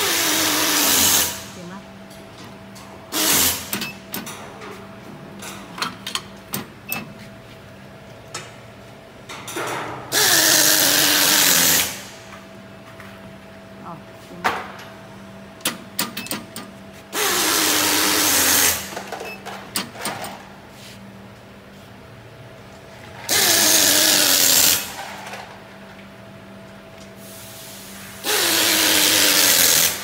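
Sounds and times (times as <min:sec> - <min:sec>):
power tool running: 0:00.0 - 0:01.6, 0:10.1 - 0:12.3, 0:17.1 - 0:19.1, 0:23.3 - 0:25.1, 0:28.2 - 0:30.0
steady low hum: 0:00.0 - 0:10.2.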